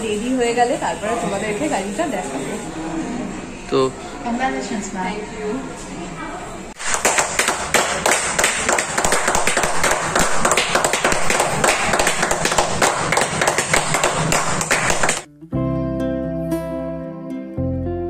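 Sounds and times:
small group clapping: 0:06.8 - 0:15.3.

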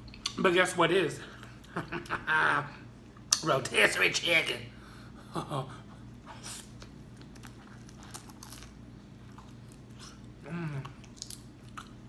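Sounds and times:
steady low hum: 0:00.0 - 0:12.0
wet chewing and biting: 0:06.6 - 0:12.0.

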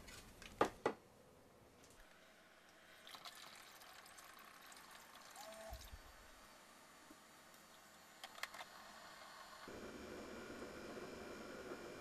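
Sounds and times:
water pouring into reservoir: 0:02.7 - 0:06.1.

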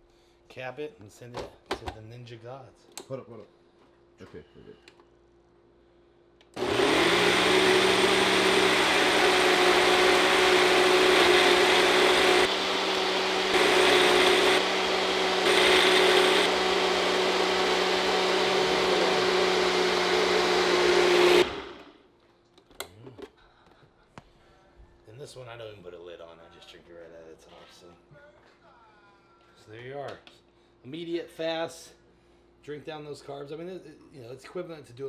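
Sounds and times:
ice blending: 0:06.6 - 0:21.9
blender motor running: 0:06.6 - 0:22.0.

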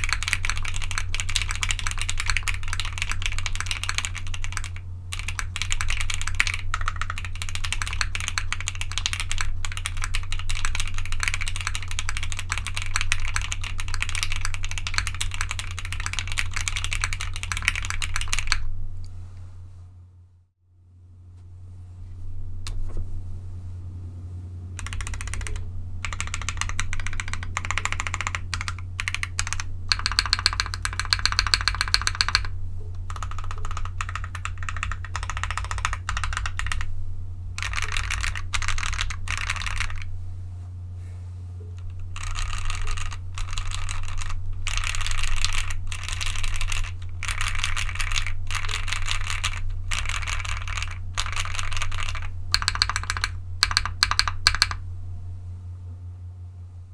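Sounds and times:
typing on mechanical keyboard: 0:00.0 - 0:18.6, 0:24.8 - 0:36.9, 0:37.6 - 0:40.1, 0:41.8 - 0:54.8
steady low hum: 0:00.0 - 0:56.9.

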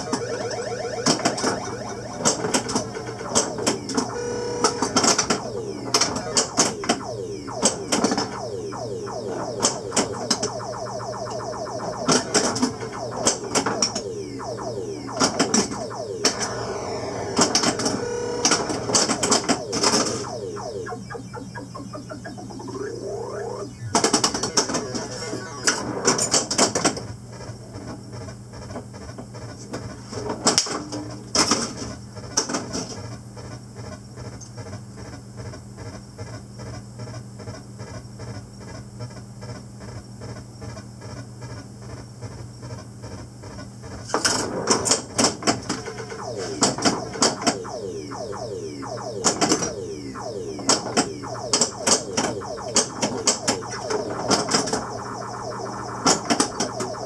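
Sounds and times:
gliding electronic sound effects: 0:00.0 - 0:26.8, 0:44.2 - 0:57.0
pulsing electronic drone: 0:00.0 - 0:26.8, 0:44.4 - 0:57.0.

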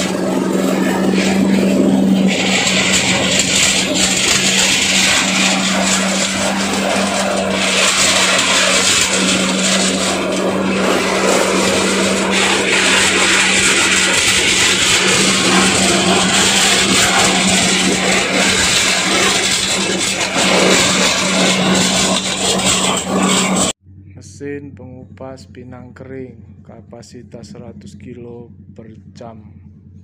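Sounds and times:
clatter of dry nuts in a drum: 0:00.0 - 0:23.7
small diesel engine humming: 0:00.0 - 0:24.8.

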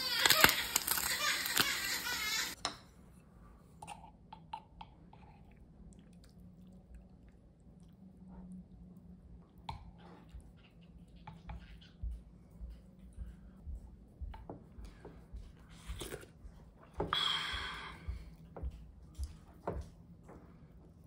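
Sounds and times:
loud crunch or rustle: 0:00.0 - 0:02.2
chewing with soft crunches: 0:03.2 - 0:21.0.

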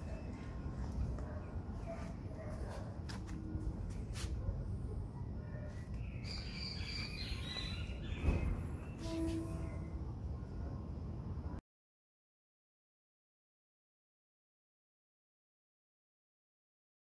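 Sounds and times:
small birds chirping: 0:05.4 - 0:09.9.

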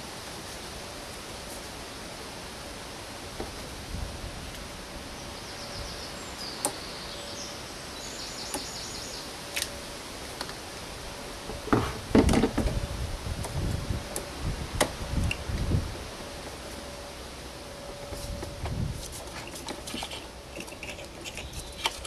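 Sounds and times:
steady hiss: 0:00.0 - 0:22.0
faint bird twittering: 0:05.1 - 0:09.4.

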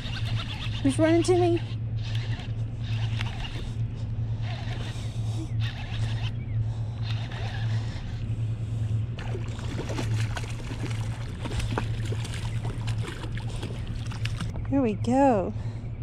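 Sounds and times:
steady low hum: 0:00.0 - 0:16.0
fish splashing in water: 0:09.2 - 0:14.5.

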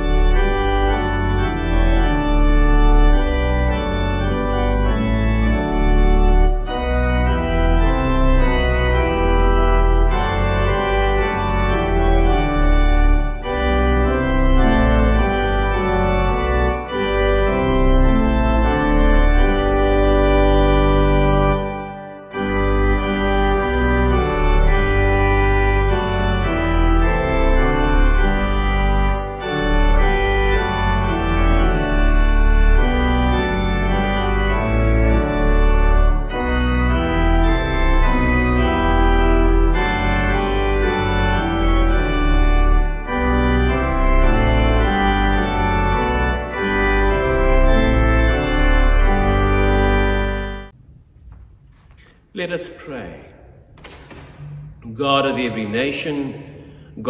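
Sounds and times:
organ playing hymn chords: 0:00.0 - 0:57.0.

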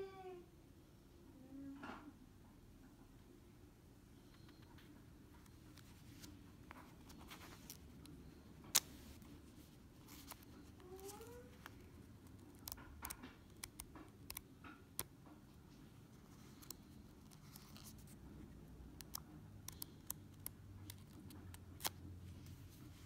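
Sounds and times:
small clicks and taps of paper: 0:12.4 - 0:15.4.

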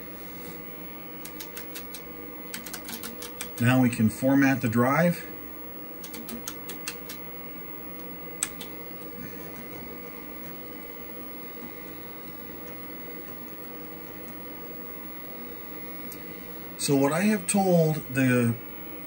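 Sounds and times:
computer fan and drives humming: 0:00.0 - 0:19.0
keyboard keystroke: 0:01.2 - 0:03.6, 0:06.0 - 0:07.2.

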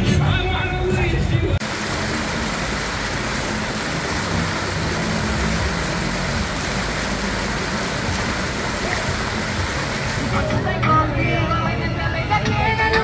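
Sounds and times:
fountain water splashing: 0:01.6 - 0:10.6.

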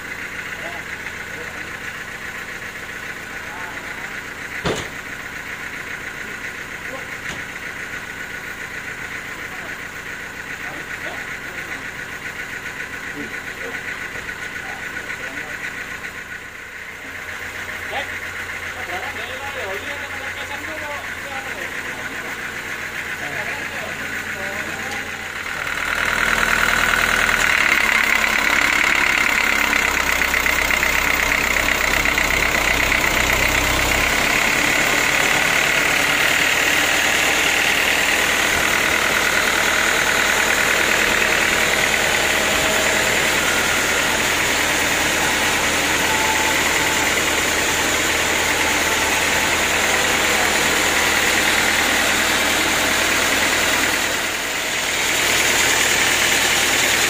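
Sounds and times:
band saw cutting log: 0:31.5 - 0:57.0.

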